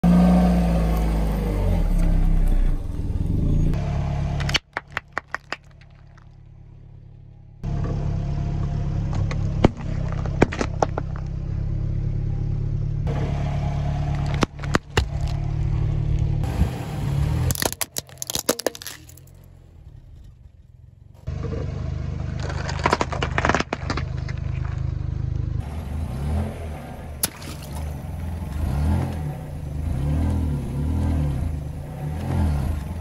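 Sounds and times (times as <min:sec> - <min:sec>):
car tyre rumble: 0:00.0 - 0:33.0
objects cracking under tyre: 0:04.4 - 0:06.6, 0:09.1 - 0:11.6, 0:14.1 - 0:16.4, 0:17.4 - 0:25.6.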